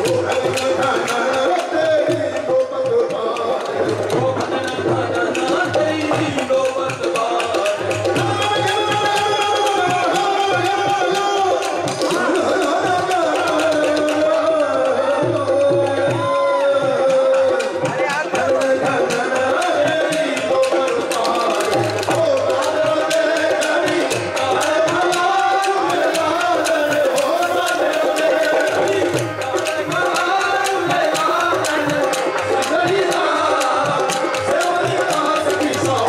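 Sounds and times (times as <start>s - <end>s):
man singing folk song: 0.0s - 36.0s
hand drum strokes: 20.0s - 36.0s.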